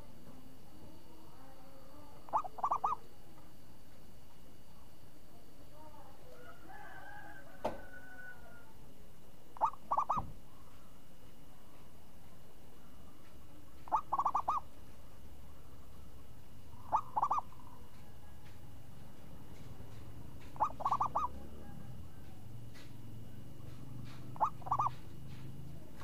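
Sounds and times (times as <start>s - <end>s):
dove cooing: 2.1s - 3.2s, 9.6s - 11.0s, 13.8s - 14.8s, 16.6s - 18.5s, 20.4s - 22.5s, 23.7s - 26.0s.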